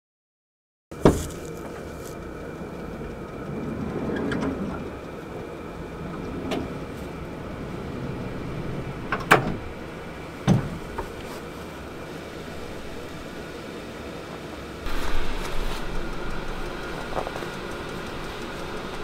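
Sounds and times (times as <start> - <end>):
dull thump: 1.0 - 1.5
van sliding door rolling open: 1.0 - 19.0.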